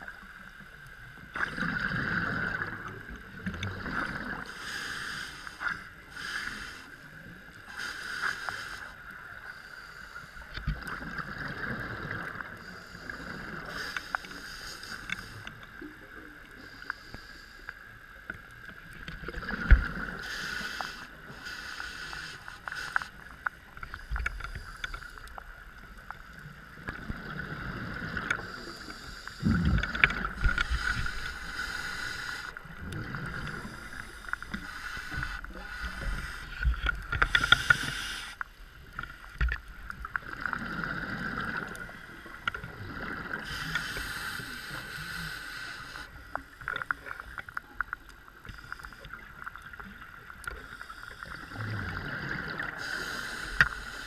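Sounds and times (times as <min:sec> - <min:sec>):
faint steady whine: 0:00.0 - 0:54.0
regulator inhale hiss: 0:04.4 - 0:10.6, 0:12.3 - 0:15.8, 0:16.5 - 0:18.3, 0:19.9 - 0:25.6, 0:27.6 - 0:39.1, 0:43.3 - 0:46.9, 0:48.3 - 0:49.5, 0:50.5 - 0:51.6, 0:52.6 - 0:54.0.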